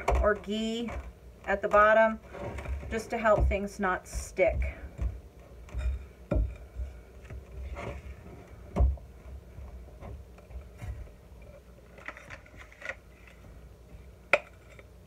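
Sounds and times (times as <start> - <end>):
dull thumps: 0.0 - 11.3.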